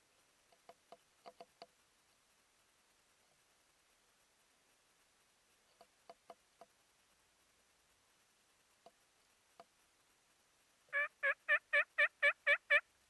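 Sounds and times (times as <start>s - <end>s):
faint clicks: 0.0s - 10.9s
turkey yelps: 10.9s - 12.9s.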